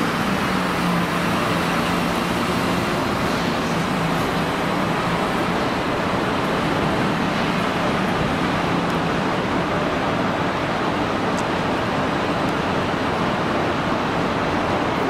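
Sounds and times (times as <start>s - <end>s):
vehicle noise: 0.0s - 15.0s.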